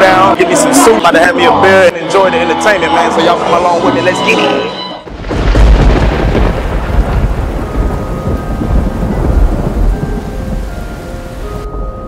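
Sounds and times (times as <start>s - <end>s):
heavy rain hissing: 5.1s - 11.7s
deep thunder rumbling: 5.1s - 12.0s.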